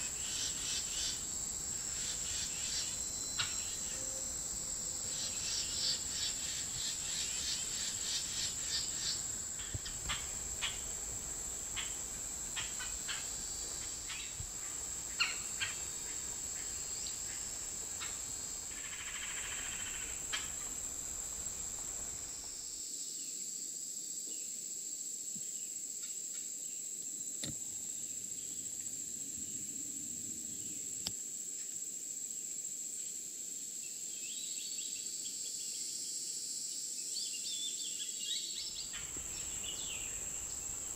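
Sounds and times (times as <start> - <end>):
insect trilling: 0.0 - 22.6, 38.6 - 40.9.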